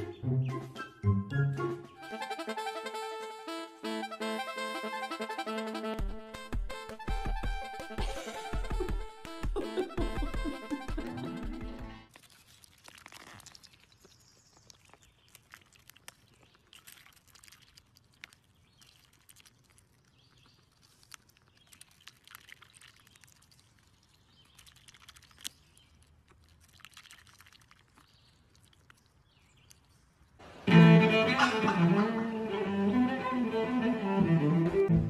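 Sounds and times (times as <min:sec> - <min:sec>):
duck bill dabbling in ice: 0:12.1 - 0:30.1.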